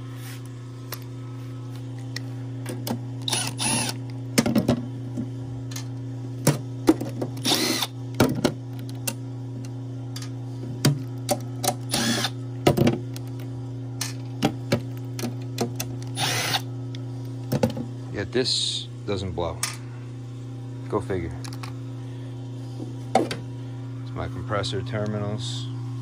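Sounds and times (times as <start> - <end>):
low electrical hum: 0.0 - 26.0
cordless driver running: 3.2 - 4.1, 7.4 - 8.0, 11.8 - 12.4, 16.0 - 16.7.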